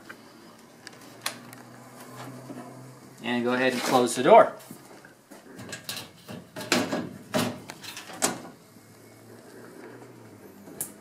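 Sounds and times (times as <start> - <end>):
metal door knocking and rattling: 6.4 - 8.4.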